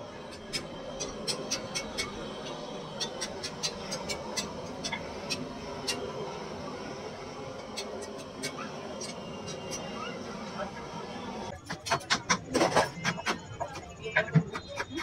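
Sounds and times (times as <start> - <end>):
steady background noise: 0.0 - 15.0
cooking utensils clicking: 0.2 - 6.2, 11.6 - 13.8.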